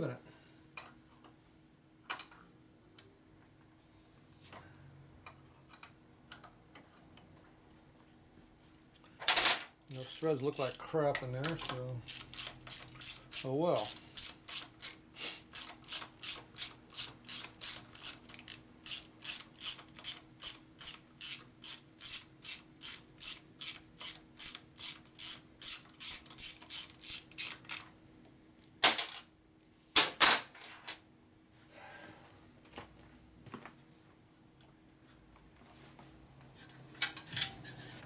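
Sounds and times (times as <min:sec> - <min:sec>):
ratchet wrench clicking: 0:09.9 - 0:10.8, 0:11.4 - 0:15.0, 0:15.6 - 0:27.9.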